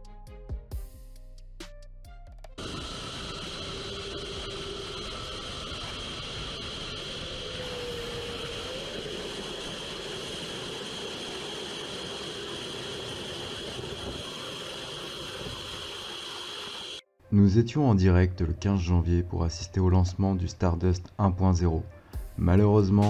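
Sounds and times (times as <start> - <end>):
rocket motor firing: 2.6 - 17.0.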